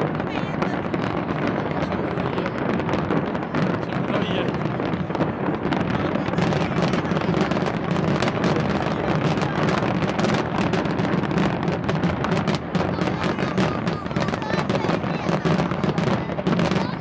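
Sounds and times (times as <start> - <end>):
fireworks banging and crackling: 0.0 - 17.0.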